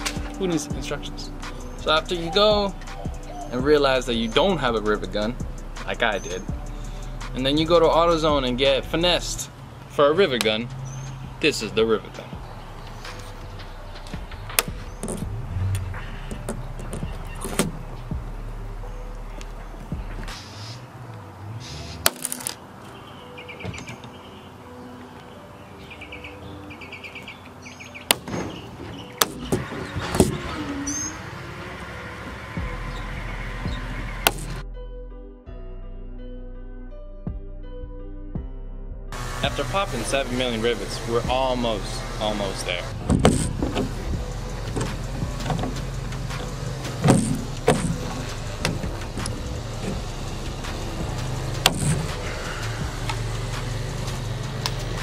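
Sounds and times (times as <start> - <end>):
steady low hum: 39.1 - 55.0
rivet mandrels snapping: 44.7 - 50.0.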